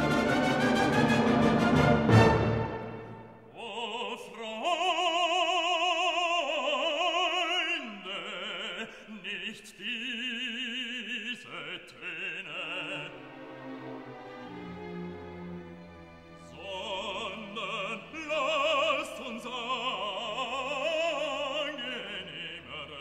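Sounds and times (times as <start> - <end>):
classical music: 0.0 - 3.6, 12.1 - 23.0.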